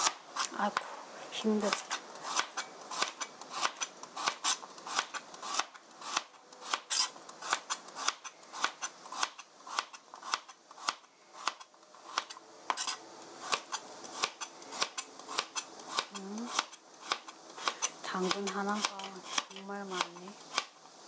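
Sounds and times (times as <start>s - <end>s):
knife chopping on cutting board: 14.2s - 20.7s.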